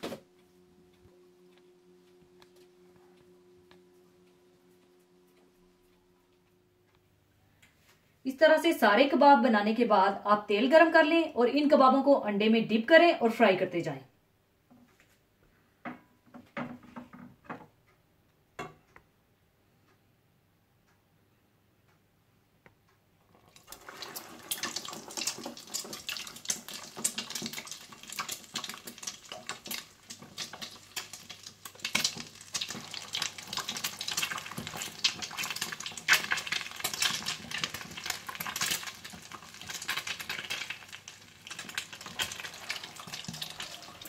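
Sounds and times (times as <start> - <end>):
food deep-frying in oil: 23.5 - 44.0
oil popping: 23.5 - 44.0.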